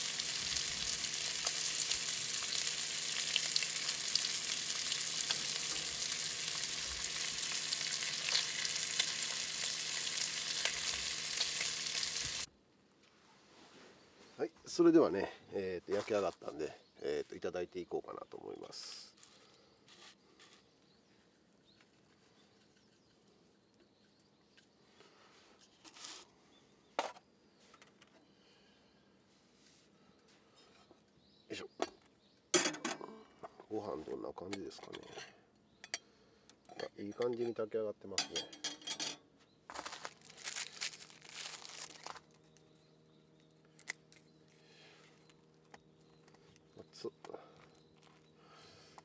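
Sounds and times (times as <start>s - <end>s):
handling rustle: 39.7s - 42.7s.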